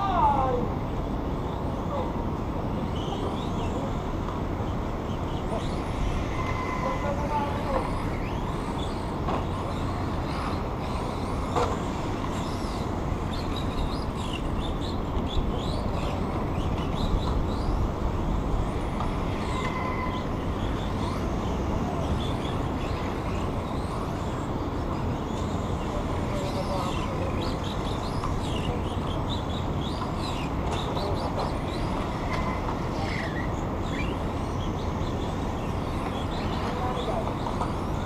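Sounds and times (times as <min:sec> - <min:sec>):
outdoor background rumble: 0:00.0 - 0:38.0
high sliding chirps and squeaks: 0:05.1 - 0:17.9.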